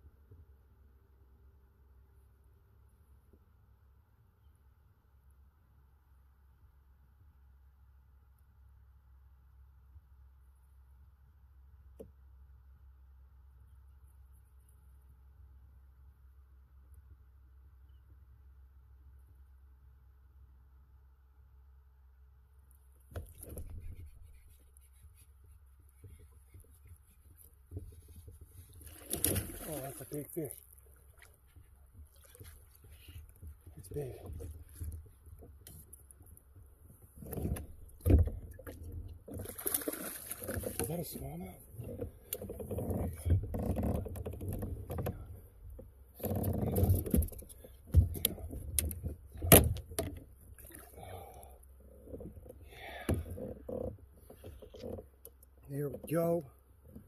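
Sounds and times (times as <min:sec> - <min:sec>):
rustling: 0:23.2 - 0:42.7
fishing rod and reel handled: 0:41.8 - 0:45.2, 0:46.2 - 0:50.3.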